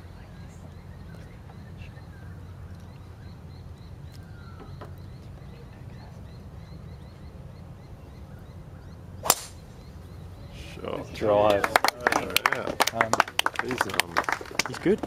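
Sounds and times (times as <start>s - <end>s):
golf club striking ball: 9.2s - 9.7s.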